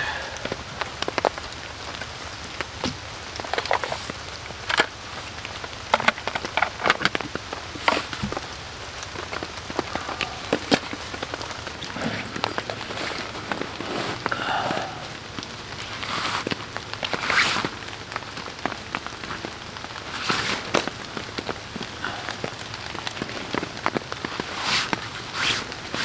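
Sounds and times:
raindrops tapping on tent: 0.0 - 26.0
steady rain hiss: 0.0 - 26.0
gear rustling and knocking: 5.9 - 14.4.

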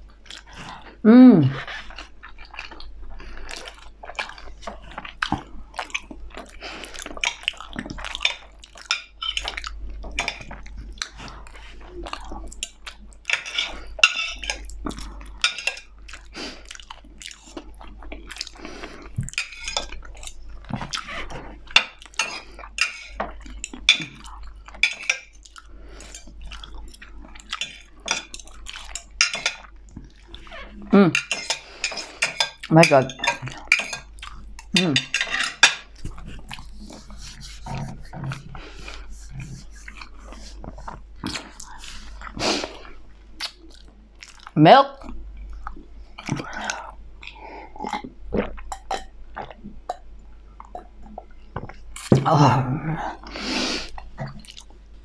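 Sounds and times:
chewing: 0.0 - 52.2, 53.1 - 54.9
cutlery scraping on a plate: 13.3 - 14.7, 19.4 - 20.3, 21.7 - 24.1, 27.6 - 29.6, 31.2 - 34.1, 35.0 - 35.8.

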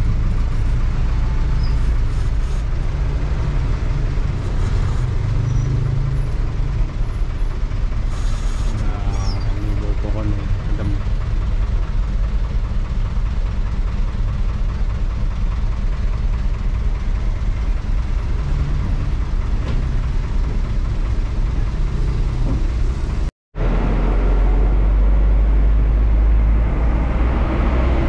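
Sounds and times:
bus engine drone: 0.0 - 28.0
bus body rattle: 9.3 - 23.3.

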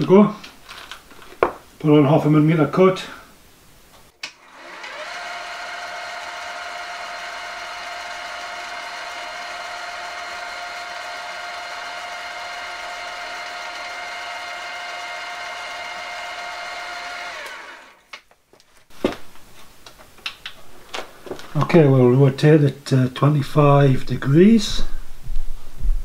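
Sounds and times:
milling machine spindle whine: 4.4 - 18.0.

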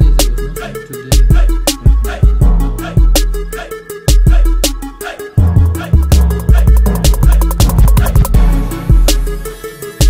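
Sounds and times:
music with strong bass beat: 0.0 - 10.0
crisp high percussion: 6.1 - 8.4.

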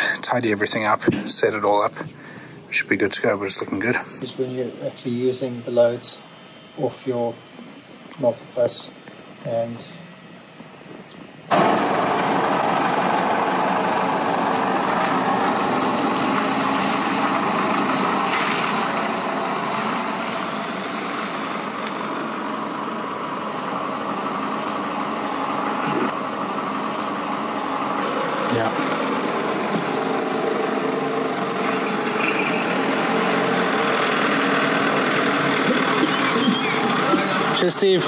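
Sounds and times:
truck engine running: 11.5 - 38.0.

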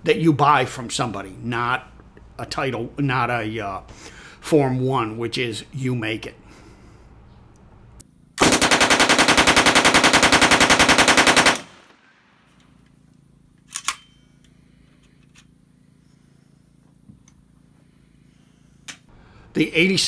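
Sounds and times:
automatic gunfire burst: 8.4 - 12.0.

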